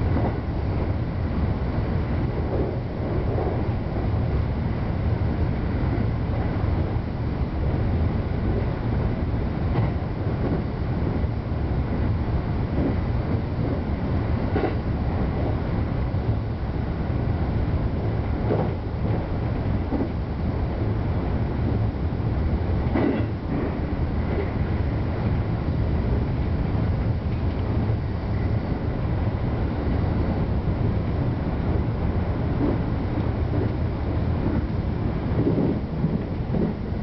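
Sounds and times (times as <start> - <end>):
train wheels rumbling on rail: 0.0 - 37.0
train wheel clacks: 14.5 - 15.5, 18.4 - 19.3, 19.9 - 20.2, 22.8 - 24.6, 32.5 - 37.0.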